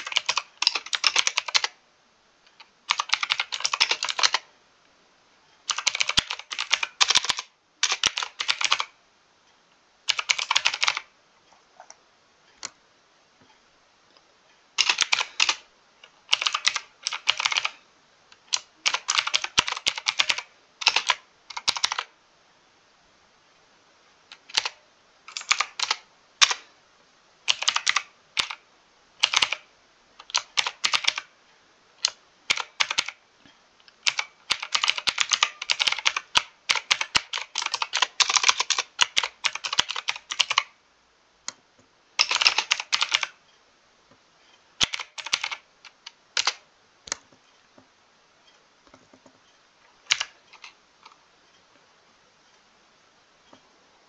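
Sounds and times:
mechanical keyboard typing: 0.0 - 1.8, 2.5 - 4.5, 5.7 - 9.0, 10.1 - 11.1, 14.8 - 17.8, 18.4 - 22.1, 24.3 - 26.7, 27.4 - 28.6, 29.2 - 31.3, 32.0 - 33.2, 33.8 - 40.8, 42.2 - 43.4, 44.8 - 47.2, 50.0 - 51.2.

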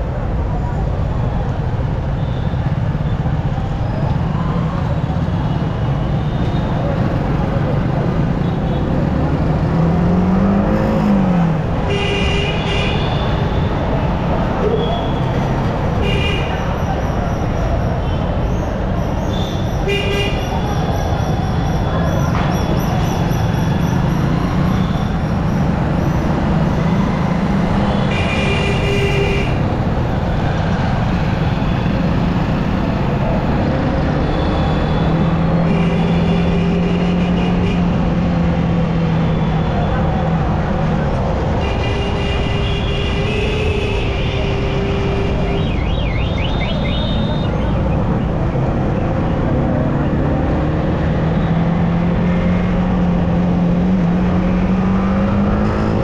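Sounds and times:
road noise: 0.0 - 56.0
vehicle horns honking: 11.8 - 13.7, 16.0 - 16.7, 19.3 - 20.6, 27.8 - 29.7, 34.3 - 38.0, 41.6 - 47.8.

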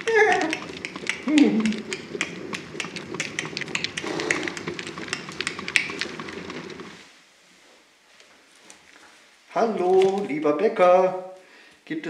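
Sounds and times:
carriage wheels rumbling: 0.0 - 7.1
horse hooves clopping: 0.0 - 7.1.

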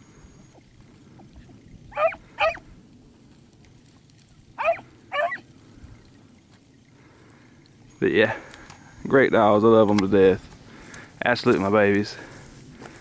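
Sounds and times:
dog barking: 1.9 - 2.6, 4.6 - 5.4.

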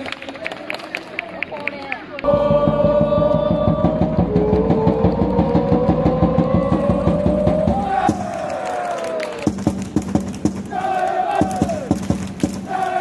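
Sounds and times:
crowd holding a chant note: 2.2 - 9.4, 10.6 - 11.9, 12.5 - 13.0
fast drumbeat: 2.3 - 8.5, 9.4 - 12.8.

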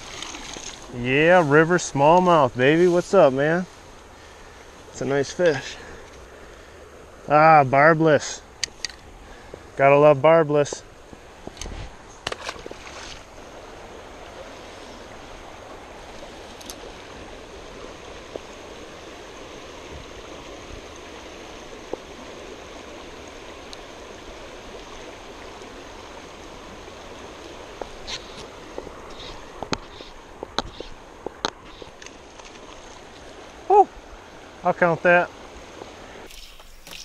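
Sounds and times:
river water flowing over rocks: 0.0 - 37.0
sleeve brushing against camera: 11.6 - 12.2, 28.0 - 31.0.

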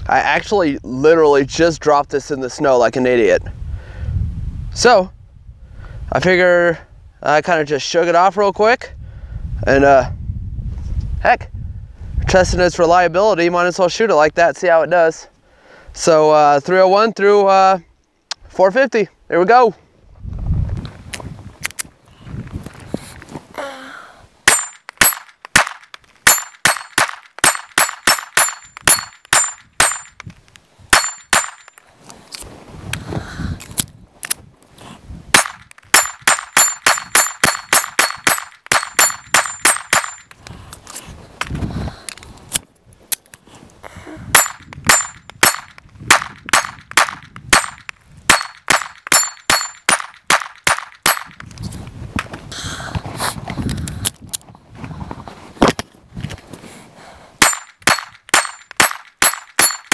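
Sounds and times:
steel targets ringing: 24.5 - 25.3, 26.3 - 30.2, 30.9 - 31.8, 35.4 - 40.3, 44.4 - 45.7, 47.6 - 50.1, 57.4 - 59.9
pistol gunshots: 24.5 - 30.2, 30.9 - 31.7, 35.3 - 40.2, 44.4 - 51.4, 57.4 - 59.9.

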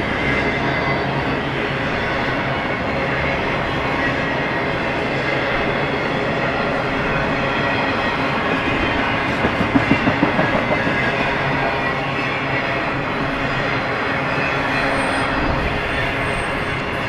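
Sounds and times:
train wheels rumbling on rail: 0.0 - 17.0
rail clacks: 6.8 - 15.0.

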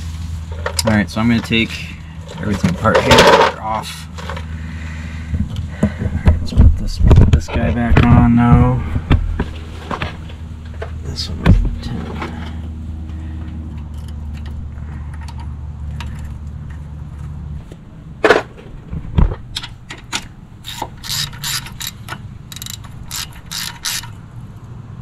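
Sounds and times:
steady low hum: 0.0 - 25.0
hand ratchet clicking: 20.6 - 24.2.

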